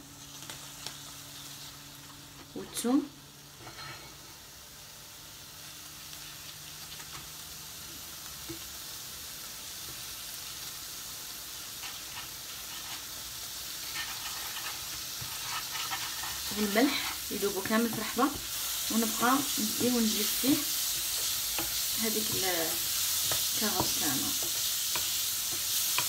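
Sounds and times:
carrots sizzling in butter: 0.0 - 26.0
wooden spatula scraping pan: 3.6 - 4.2, 11.8 - 13.1, 13.8 - 18.4.

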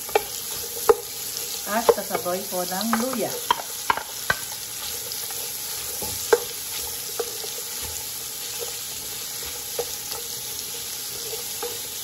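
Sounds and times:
food sizzling in hot oil: 0.0 - 12.0
wooden spoon knocking pot: 1.7 - 4.6.

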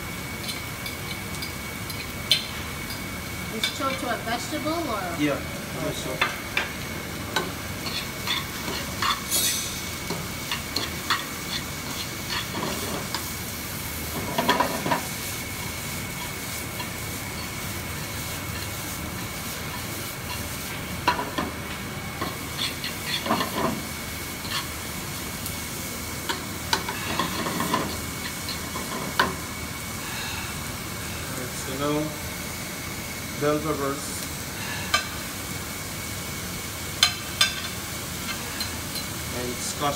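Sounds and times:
vegetables sizzling in oil: 0.0 - 39.9
metal fork scraping a pan: 22.6 - 23.7.

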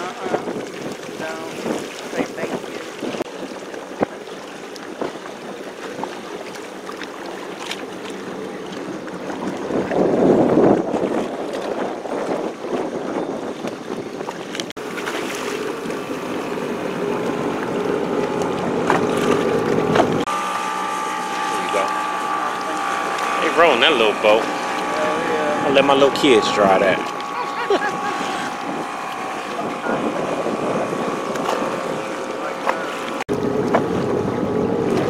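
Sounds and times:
wind noise on microphone: 0.0 - 4.2, 8.9 - 14.7, 24.4 - 35.0
watercraft engine running: 0.0 - 35.0.

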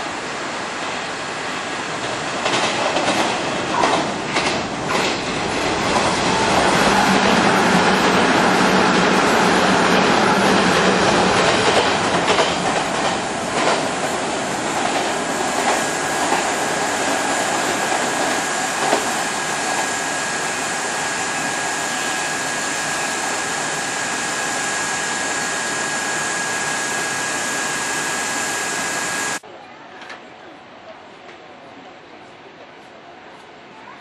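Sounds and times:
electric train running: 2.0 - 29.4
wheels clacking over rail joints: 9.0 - 19.9.

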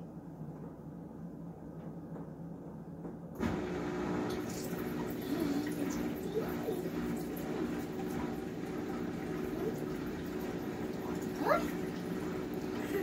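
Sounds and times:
dishwasher humming: 3.4 - 13.0
water rushing and splashing: 3.5 - 13.0.

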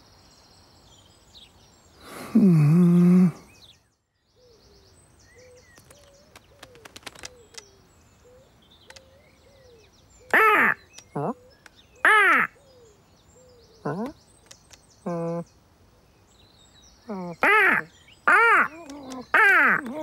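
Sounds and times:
small birds chirping: 0.0 - 20.0
light clicks: 5.7 - 7.7, 8.8 - 9.2, 10.2 - 11.8, 14.0 - 15.0
bird squawk: 10.2 - 12.8, 17.1 - 20.0.

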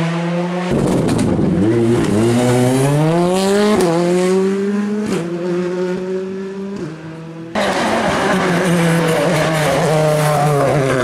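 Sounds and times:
rally car engine revving: 0.0 - 11.0.

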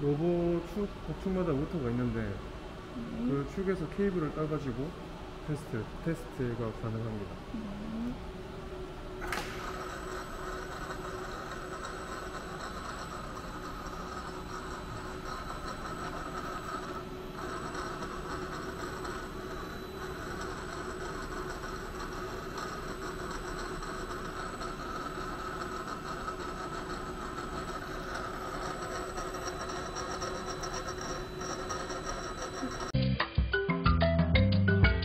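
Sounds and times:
music: 33.0 - 35.0.

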